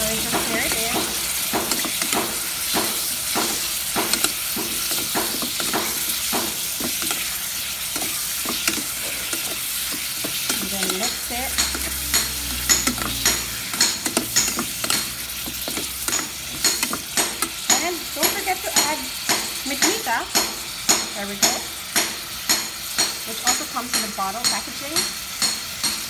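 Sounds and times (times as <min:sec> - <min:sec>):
metal spatula scraping pot: 0:00.0 - 0:19.0
shrimp sizzling in hot oil: 0:00.0 - 0:26.0.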